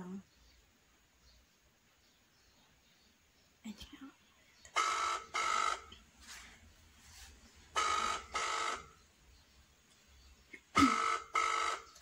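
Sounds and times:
telephone ringback tone: 4.8 - 5.9, 7.8 - 9.0, 10.8 - 12.0.

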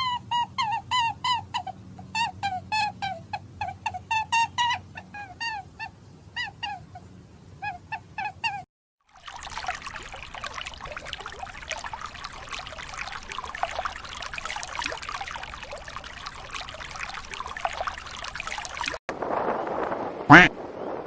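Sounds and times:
underwater bubbling and crackling: 9.0 - 20.4.

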